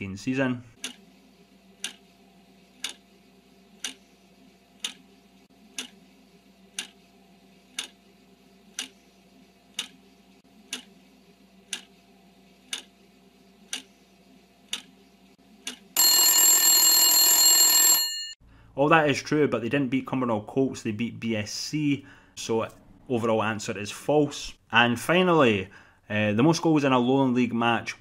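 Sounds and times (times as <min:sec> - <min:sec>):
clock ticking: 0:00.8 - 0:01.0, 0:01.8 - 0:02.0, 0:02.8 - 0:03.0, 0:03.8 - 0:04.0, 0:04.8 - 0:05.0, 0:05.7 - 0:06.0, 0:06.7 - 0:07.0, 0:07.7 - 0:08.0, 0:08.7 - 0:09.0, 0:09.7 - 0:10.0, 0:10.7 - 0:10.9, 0:11.7 - 0:11.9, 0:12.7 - 0:12.9, 0:13.7 - 0:13.9, 0:14.7 - 0:14.9, 0:15.6 - 0:15.9
loud alarm bell ringing: 0:16.0 - 0:18.4.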